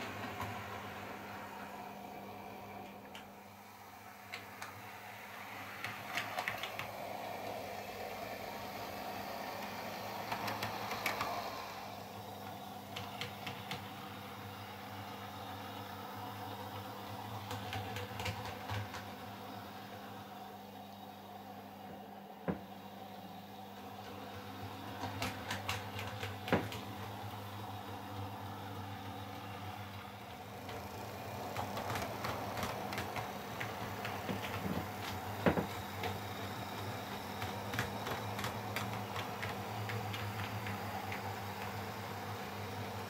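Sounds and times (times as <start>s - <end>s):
model train motor hum: 24.0s - 43.0s.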